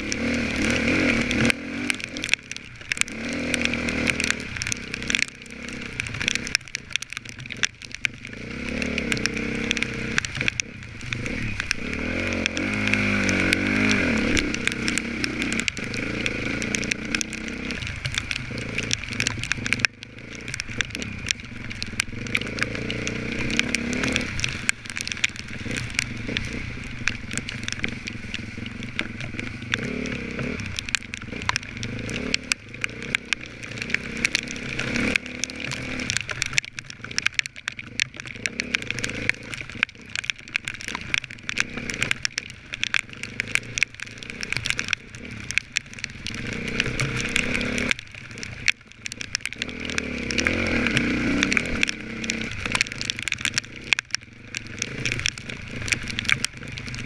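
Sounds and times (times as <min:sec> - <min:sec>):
dirt bike engine revving: 0:00.0 - 0:02.2, 0:11.1 - 0:17.8, 0:22.1 - 0:24.4, 0:27.9 - 0:30.6, 0:31.3 - 0:36.2, 0:49.6 - 0:52.6.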